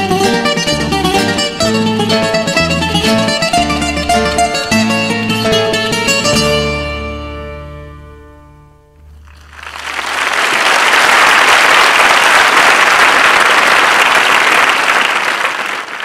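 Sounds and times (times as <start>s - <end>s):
plucked string music chord: 0.0s - 9.5s
audience applause: 9.2s - 16.0s.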